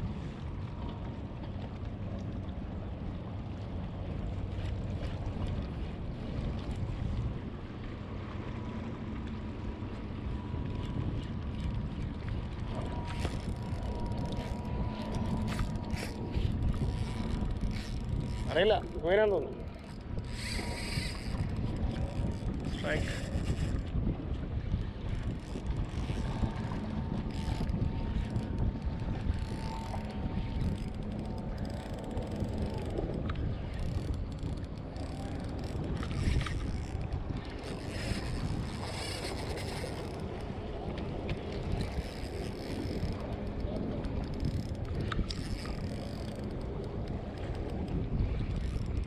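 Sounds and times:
wind buffeting microphone: 0:00.0 - 0:49.0
thin steady whine: 0:09.0 - 0:23.8, 0:25.4 - 0:47.8.

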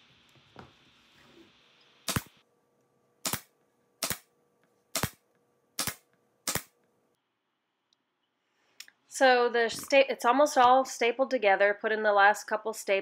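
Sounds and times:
pneumatic staple gun firing: 0:02.1 - 0:02.3, 0:03.2 - 0:04.2, 0:05.0 - 0:05.2, 0:05.8 - 0:06.7.

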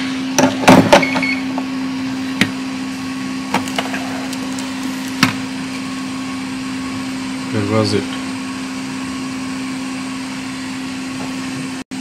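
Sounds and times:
low equipment hum: 0:00.0 - 0:12.0.

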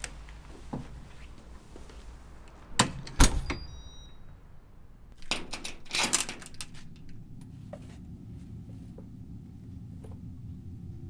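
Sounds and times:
high electronic keypad beeps: 0:03.5 - 0:04.2
door lock clunks: 0:05.2 - 0:06.7
latch and handle clattering: 0:05.2 - 0:07.2.

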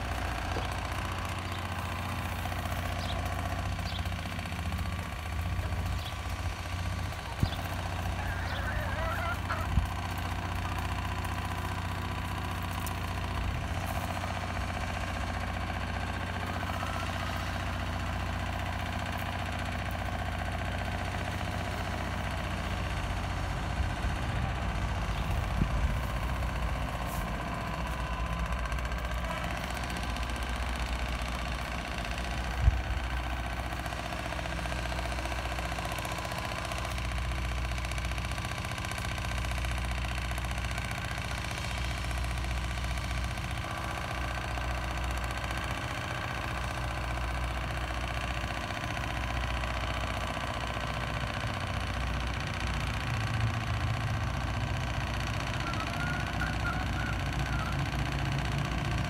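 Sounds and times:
chicken calling: 0:07.0 - 0:11.0, 0:16.4 - 0:17.6, 0:55.6 - 0:57.9.

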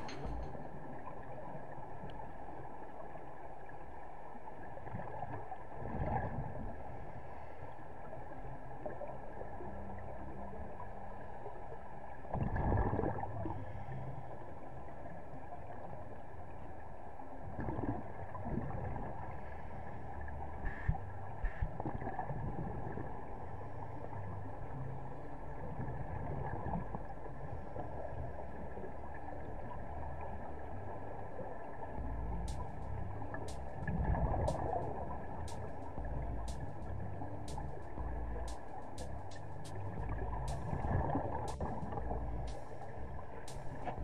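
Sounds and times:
underwater hum and hiss: 0:00.0 - 0:44.0
diver's exhaled bubbles rumbling: 0:12.4 - 0:13.6, 0:31.8 - 0:37.3.

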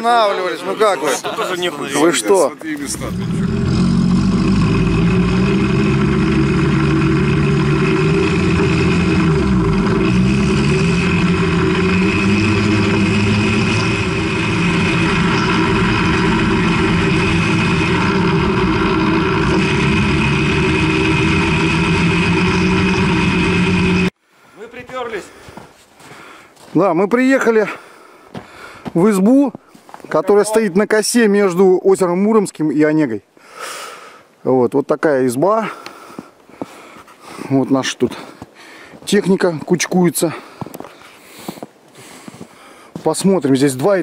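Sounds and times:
diesel engine running under load: 0:02.9 - 0:24.2.

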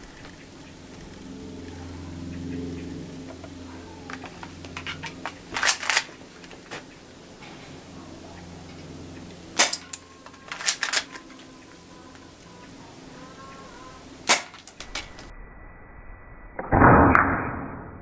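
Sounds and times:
toy pistol shooting clicks: 0:04.1 - 0:06.2, 0:09.6 - 0:11.5, 0:14.2 - 0:15.3.

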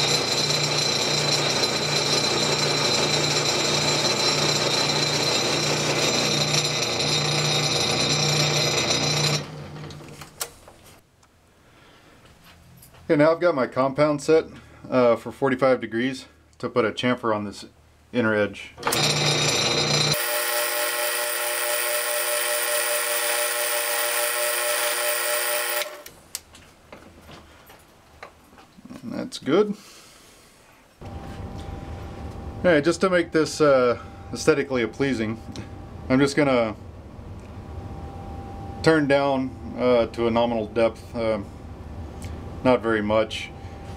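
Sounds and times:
lathe whining and coasting down: 0:00.0 - 0:10.3, 0:18.8 - 0:26.1.

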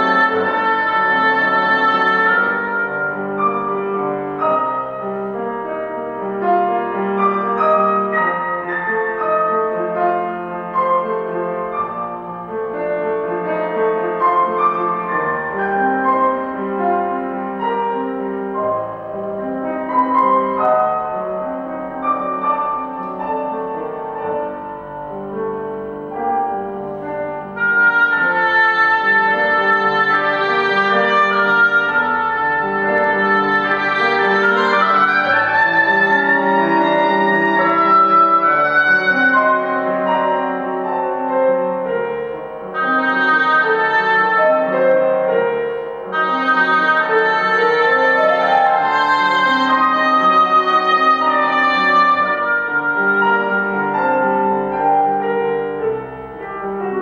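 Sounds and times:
oboe sustained note: 0:00.0 - 0:05.0, 0:27.4 - 0:41.7, 0:42.7 - 0:55.9
grand piano playing: 0:00.0 - 0:57.0.

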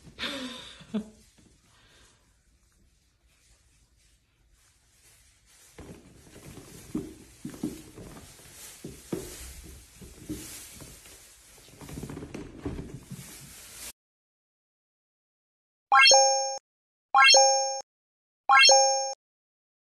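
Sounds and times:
cats thumping on fabric hammock: 0:05.5 - 0:13.9.

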